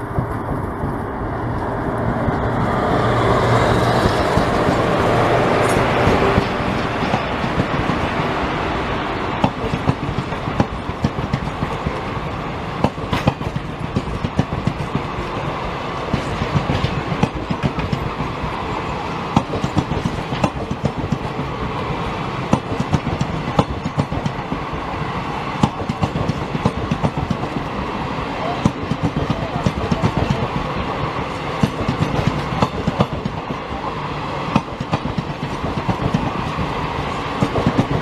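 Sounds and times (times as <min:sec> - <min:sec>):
train rumble: 0:00.0 - 0:38.0
train wheels clattering on rail joints: 0:03.8 - 0:08.3, 0:09.4 - 0:18.6, 0:19.3 - 0:21.6, 0:22.4 - 0:24.8, 0:25.6 - 0:30.7, 0:31.3 - 0:33.6, 0:34.4 - 0:38.0.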